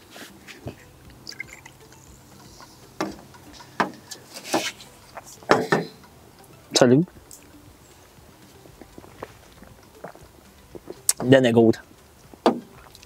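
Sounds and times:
soda pouring and fizzing: 1.3 - 1.8.

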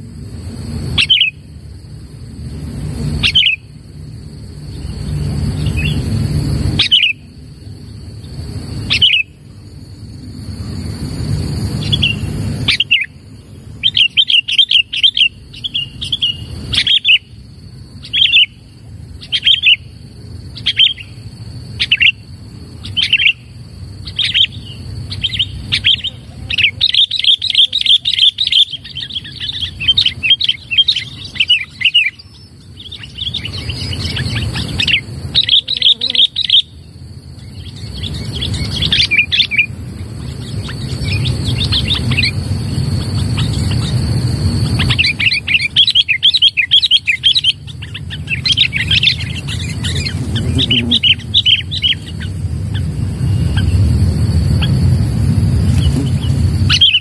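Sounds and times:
bulbul chattering whistled notes: 40.4 - 54.8.

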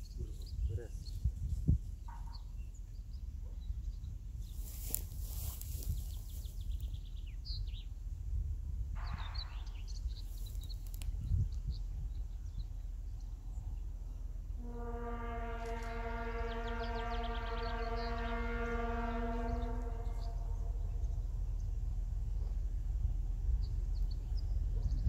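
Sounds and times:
low wind rumble: 0.0 - 25.0
birds chirping: 9.0 - 25.0
locomotive horn blast: 14.4 - 22.5.

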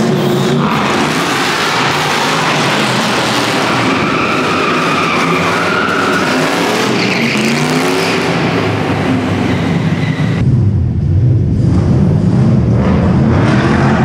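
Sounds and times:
tyres squealing: 0.6 - 10.4.

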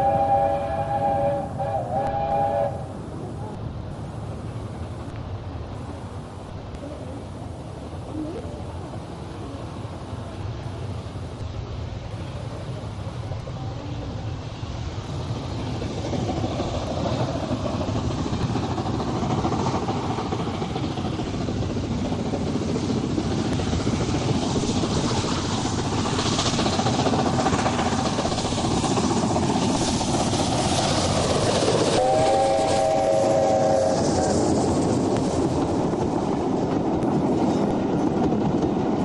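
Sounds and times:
steam locomotive running: 0.0 - 39.0.

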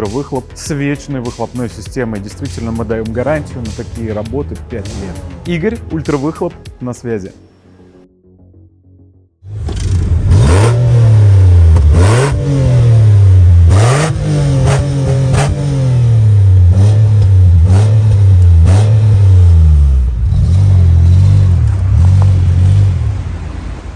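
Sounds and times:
engine revving: 2.4 - 6.2, 9.5 - 23.9.

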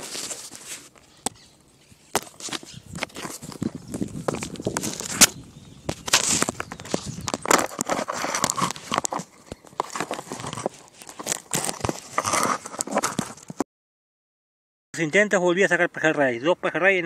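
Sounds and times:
phone handling rustles and clicks: 2.1 - 13.6.

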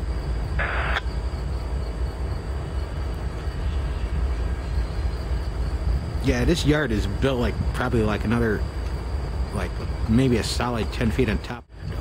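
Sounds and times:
diesel locomotive rumbling: 0.0 - 12.0.

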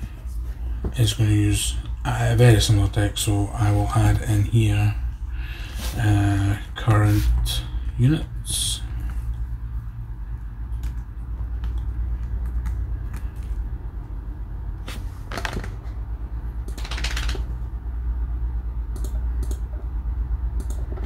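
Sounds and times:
steady low hum: 0.0 - 21.0
keyboard and mouse clicks: 10.8 - 13.5, 16.6 - 17.5, 18.9 - 19.8, 20.6 - 21.0.

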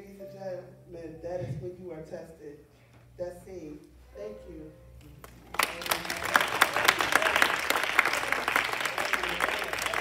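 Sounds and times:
audience applauding: 5.5 - 10.0.

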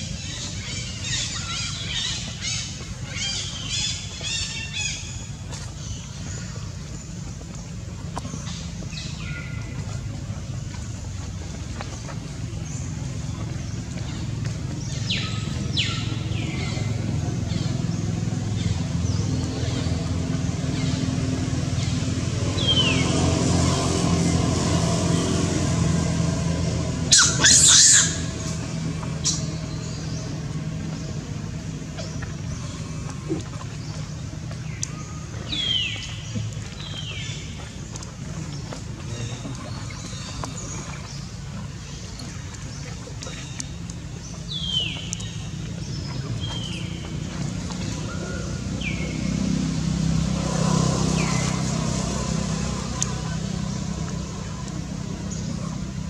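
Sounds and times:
engine humming: 0.0 - 56.0
low outdoor rumble: 0.0 - 56.0
baby monkey crying: 27.1 - 28.3.

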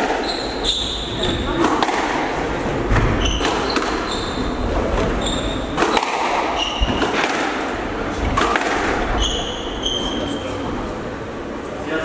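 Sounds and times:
shoes squeaking on wooden floor: 0.0 - 1.6, 2.9 - 7.3, 9.0 - 10.6
squash ball hitting rackets and walls: 0.0 - 9.7.

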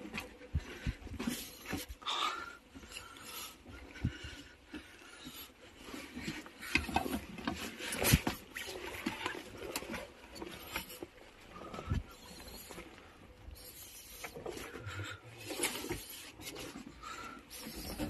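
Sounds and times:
knocks and scrapes on rock: 6.0 - 12.8, 13.5 - 18.0.

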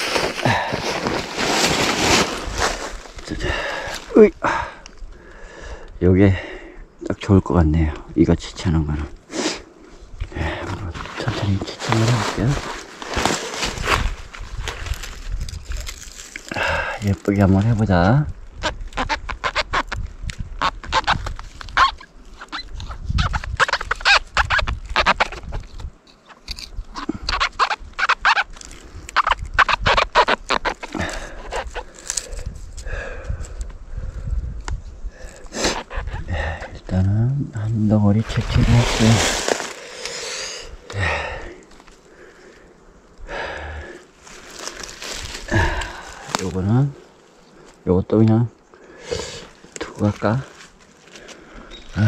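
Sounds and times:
man breathing and sniffing: 0.0 - 6.9, 30.5 - 36.8, 39.0 - 46.4, 48.7 - 49.8
squeaks from mushroom flesh: 10.3 - 33.5, 35.1 - 42.6, 43.8 - 47.8, 48.9 - 52.0
man murmuring: 45.5 - 46.8.

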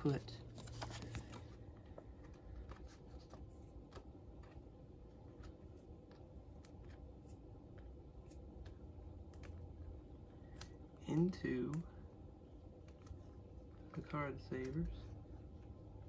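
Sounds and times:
trading cards clicking and rustling: 0.0 - 11.8.

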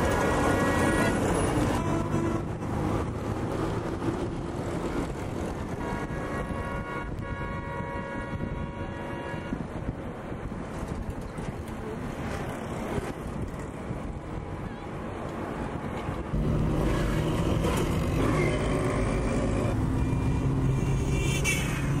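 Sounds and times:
road traffic noise: 0.0 - 22.0.

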